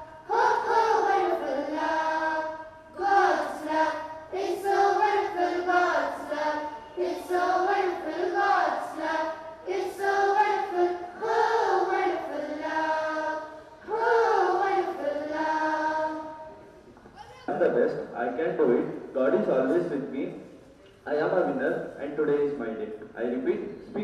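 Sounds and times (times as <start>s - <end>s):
children singing in unison: 0.0s - 16.6s.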